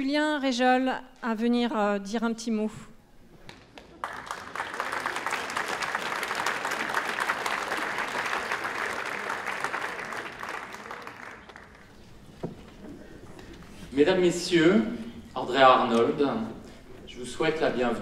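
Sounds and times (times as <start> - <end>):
audience clapping: 3.5 - 12.3.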